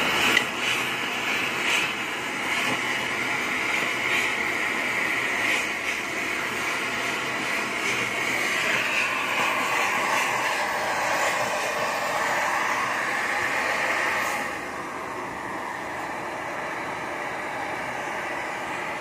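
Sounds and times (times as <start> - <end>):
gas torch flame hissing: 0.0 - 19.0.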